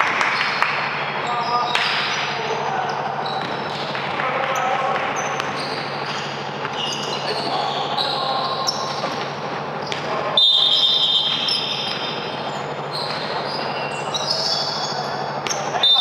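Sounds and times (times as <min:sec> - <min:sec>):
steady hum: 0:00.0 - 0:16.0
faint player voices: 0:01.2 - 0:10.4
sneaker squeaks on court: 0:01.2 - 0:16.0
basketball bouncing: 0:03.2 - 0:06.8.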